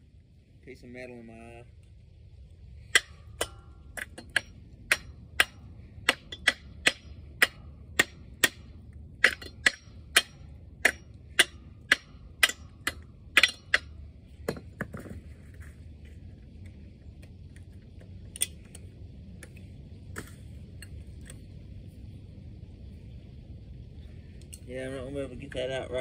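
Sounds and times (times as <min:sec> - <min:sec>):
metal-on-metal tapping: 0:02.8 - 0:15.2.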